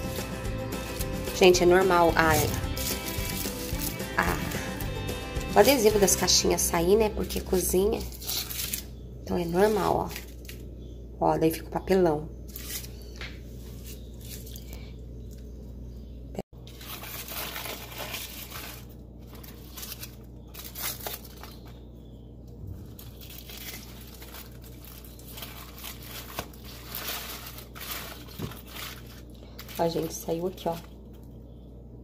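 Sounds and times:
aluminium foil crinkling and tearing: 0.8s - 4.7s, 7.1s - 10.7s, 12.5s - 14.8s, 16.6s - 22.0s, 22.8s - 31.3s.

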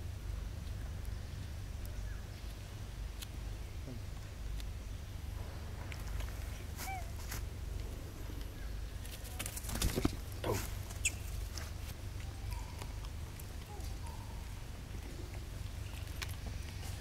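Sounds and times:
low rumble: 5.0s - 9.0s
rustling: 5.4s - 17.0s.

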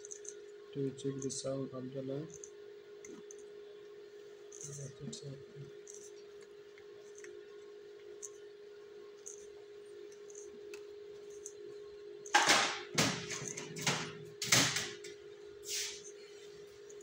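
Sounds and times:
faint steady hum: 0.0s - 17.0s
rustling and scraping handling noise: 15.6s - 17.0s.

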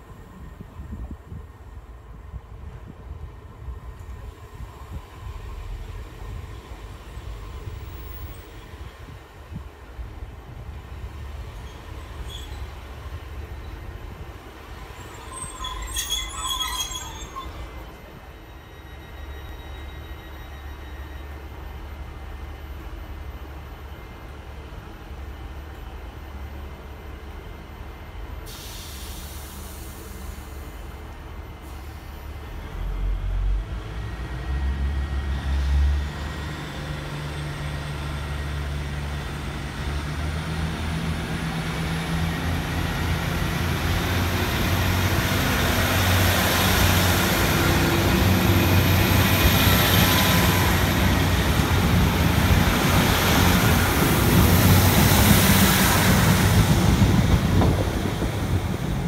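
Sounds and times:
train engine drone: 0.0s - 59.0s
train wheel noise: 24.3s - 59.0s.

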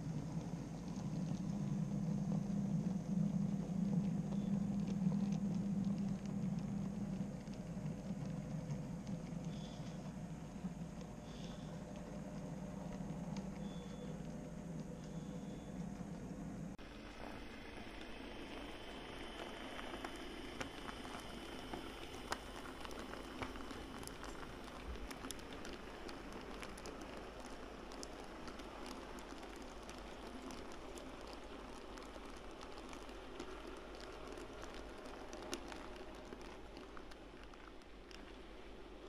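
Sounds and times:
model train wheels rolling on rails: 0.0s - 39.0s.

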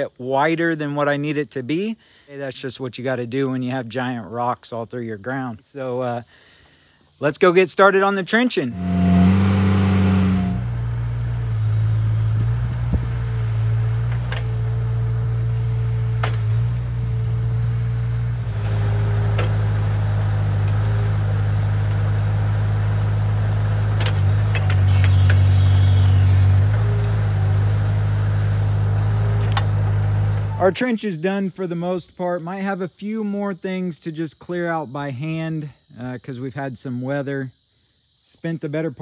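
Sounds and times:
high steady whine: 8.4s - 21.2s
loader engine running: 8.7s - 30.8s.

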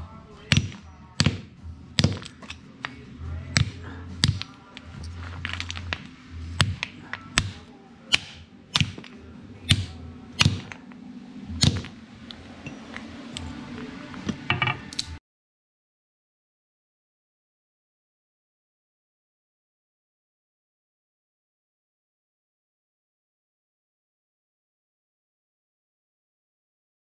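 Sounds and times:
steady low hum: 0.0s - 15.2s.

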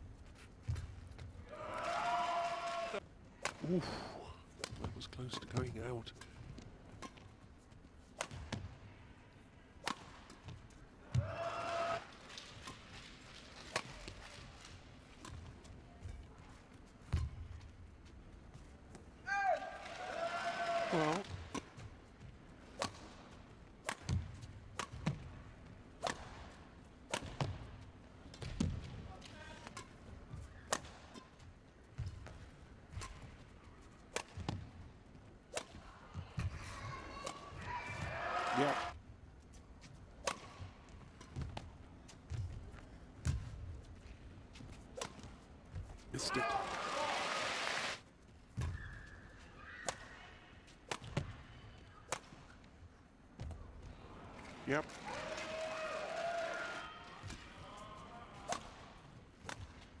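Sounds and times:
racket striking shuttlecock: 8.2s - 8.7s, 9.8s - 10.4s, 23.8s - 25.3s, 26.0s - 27.6s, 40.2s - 41.6s, 58.5s - 58.8s
rackets hitting shuttlecock: 8.2s - 8.8s, 9.8s - 11.2s, 22.6s - 25.4s, 26.0s - 27.7s, 29.6s - 31.4s, 34.0s - 34.8s, 35.5s - 35.8s, 40.2s - 41.7s, 49.8s - 50.2s, 50.8s - 51.4s, 52.1s - 52.6s, 58.4s - 60.0s.

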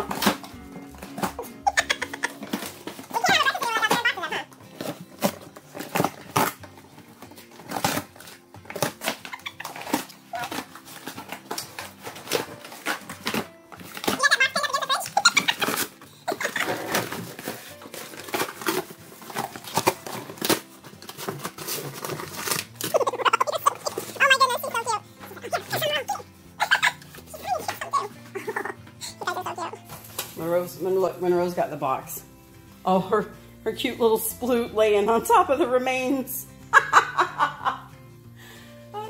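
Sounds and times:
dogs tearing cardboard: 0.0s - 30.4s.

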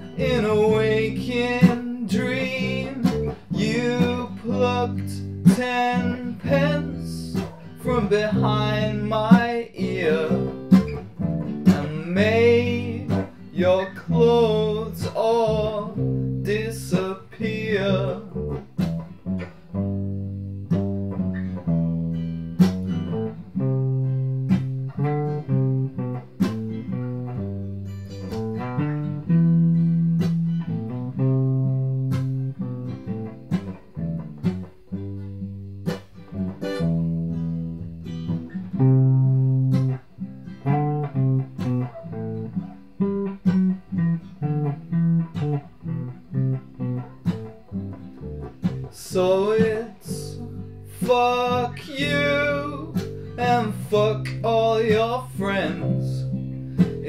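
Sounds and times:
person singing: 0.0s - 10.8s, 11.6s - 18.4s, 48.8s - 57.0s
acoustic and electric guitars playing: 0.0s - 57.0s.

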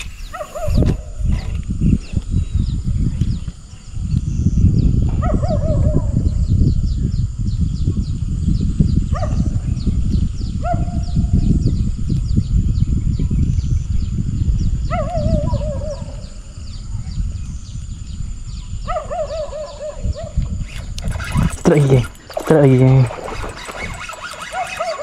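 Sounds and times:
low rumbling noise: 0.0s - 24.2s
wavering animal calls: 18.8s - 25.0s.

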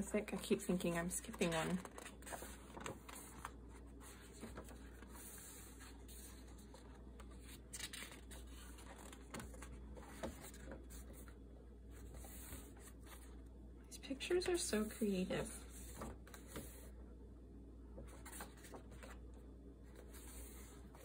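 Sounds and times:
paper pages rustling: 0.2s - 11.4s, 18.0s - 19.2s.

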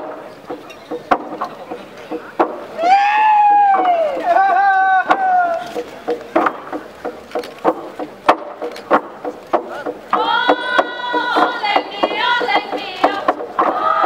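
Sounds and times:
log drum beaten with wooden beaters: 0.0s - 14.0s
group of voices chanting: 10.1s - 14.0s.

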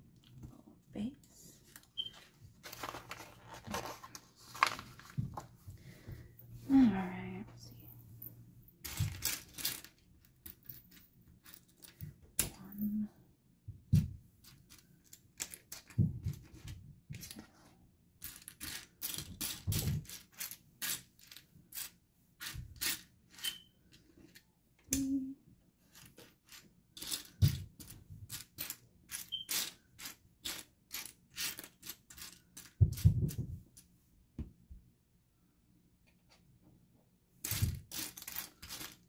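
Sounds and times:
plastic bricks clicking and clattering: 14.7s - 17.4s, 18.2s - 23.6s, 37.4s - 39.0s.

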